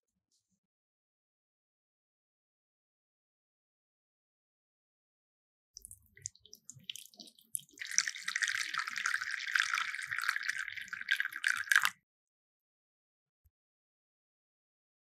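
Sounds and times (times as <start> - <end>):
liquid pouring: 5.8 - 11.9.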